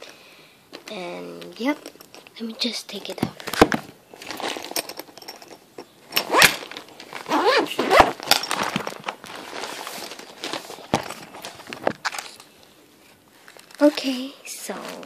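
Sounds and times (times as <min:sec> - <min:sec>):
rustling mesh bag: 0:04.1 - 0:12.4, 0:13.1 - 0:15.0.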